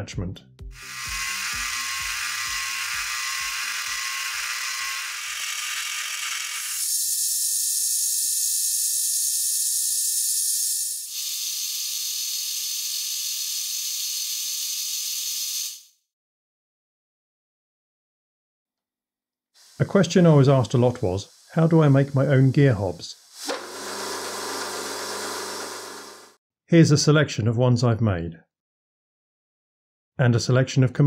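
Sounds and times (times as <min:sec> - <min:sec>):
gear cutting machine whirring: 0:00.8 - 0:07.0, 0:23.4 - 0:26.4.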